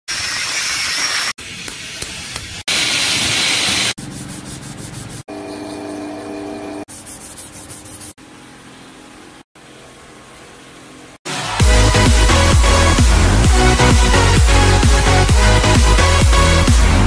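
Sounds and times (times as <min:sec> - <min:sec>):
hand sanding strokes: 0:04.0 - 0:05.3, 0:06.9 - 0:08.2.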